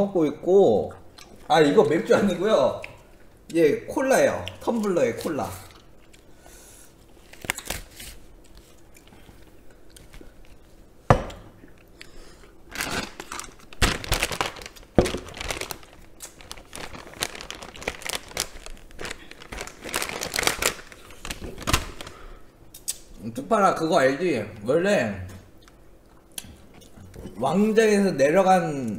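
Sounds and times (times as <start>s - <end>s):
plastic packet crinkling and tearing: 7.2s - 8.8s, 12.7s - 22.3s.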